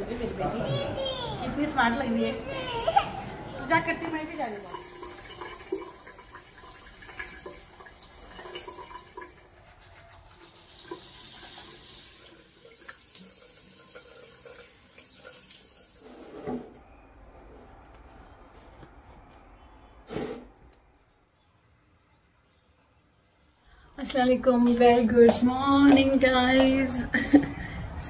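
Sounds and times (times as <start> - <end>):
tap water running into sink: 4.0 - 9.6, 10.3 - 16.2.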